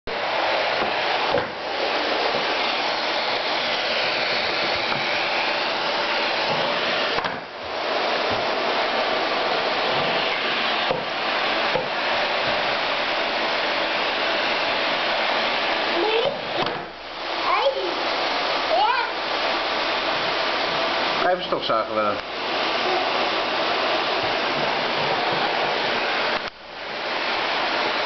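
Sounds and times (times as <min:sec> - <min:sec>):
vacuum cleaner whooshing: 0:00.0 - 0:28.0.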